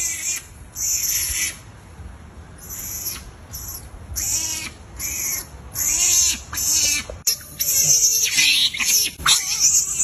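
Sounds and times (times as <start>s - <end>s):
baby monkey crying: 0.0s - 1.6s, 2.6s - 10.0s.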